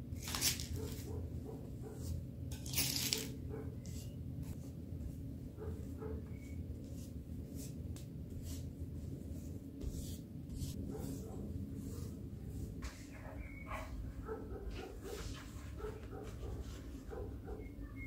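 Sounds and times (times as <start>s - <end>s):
steady low hum: 3.2s - 18.0s
spatula scraping filling on dough: 6.2s - 13.6s.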